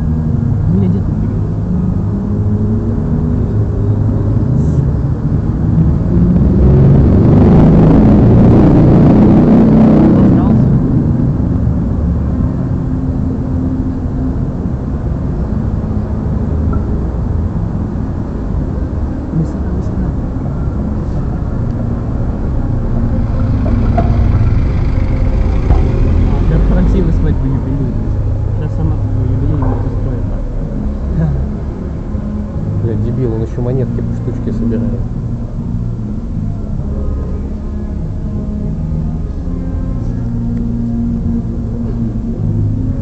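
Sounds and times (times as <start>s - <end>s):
city street noise rumble: 0.0s - 43.0s.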